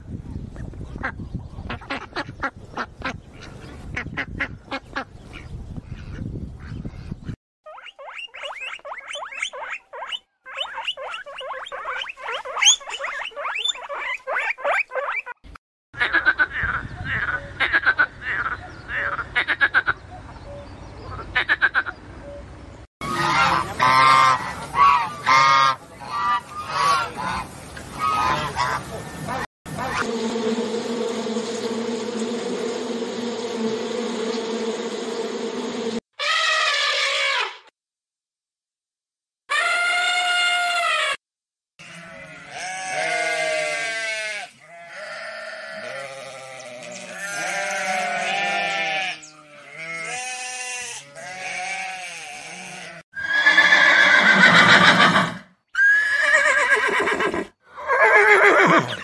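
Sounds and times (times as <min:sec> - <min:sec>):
guinea pigs squealing: 0:07.7 - 0:15.4
bees buzzing: 0:29.7 - 0:36.0.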